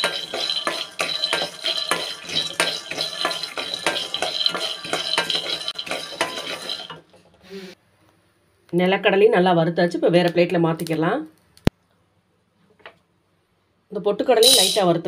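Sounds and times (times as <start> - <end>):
peanuts rattling in metal pan: 0.0 - 7.1, 14.4 - 14.9
wooden spatula stirring: 0.0 - 7.2.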